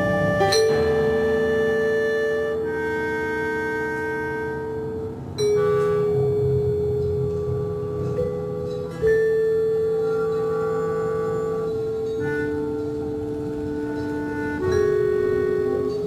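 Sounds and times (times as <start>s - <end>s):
low sustained drone: 0.0s - 16.0s
vibraphone struck with soft mallets: 0.4s - 1.5s, 4.8s - 13.2s.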